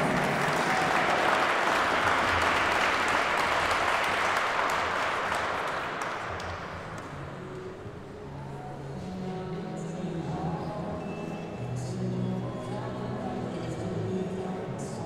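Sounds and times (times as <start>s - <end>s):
spectators applauding: 0.0s - 7.4s.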